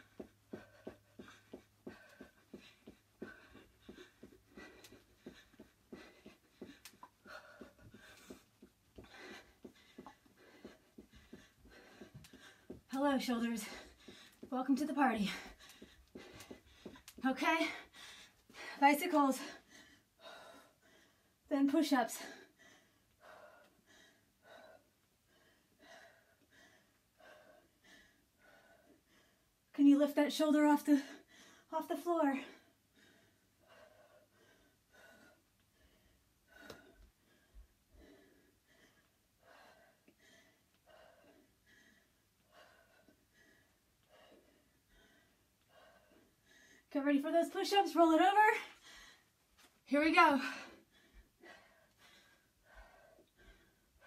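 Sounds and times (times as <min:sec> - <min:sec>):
heavy breathing: 0:00.0 - 0:21.4, 0:32.5 - 0:46.9, 0:50.3 - 0:54.0.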